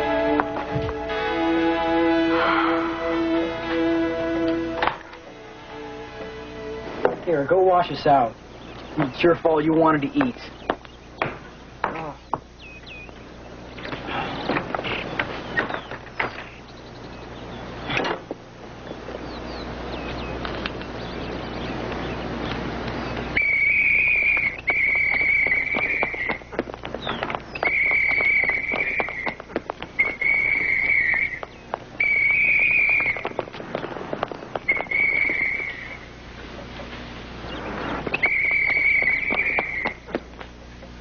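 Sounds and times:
whistle blasts: 23.4s - 26.4s, 27.6s - 29.3s, 30.0s - 31.4s, 32.0s - 33.3s, 34.6s - 36.1s, 38.1s - 40.0s
knocks and scuffs: 24.4s - 35.8s.

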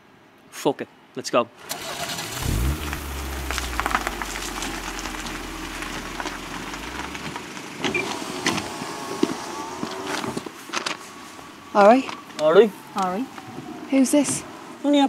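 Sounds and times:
car engine running: 1.8s - 10.3s.

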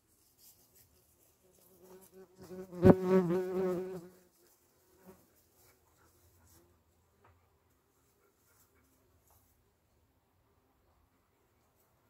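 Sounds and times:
insect buzzing: 1.8s - 4.2s.

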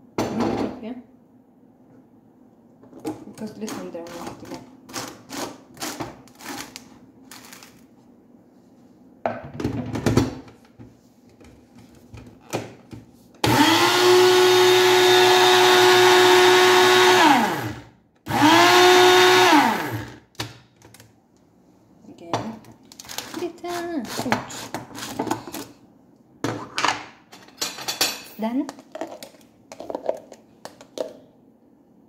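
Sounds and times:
blender motor running: 13.4s - 20.2s.

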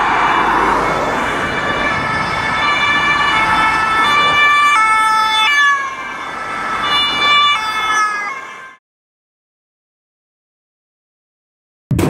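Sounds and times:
road and engine noise: 0.0s - 8.8s
two-tone police sirens: 0.0s - 8.8s.

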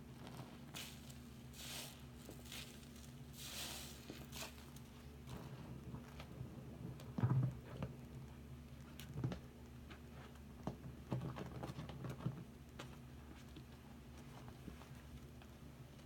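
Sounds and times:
soapy sponges squelching in water: 0.8s - 4.8s.

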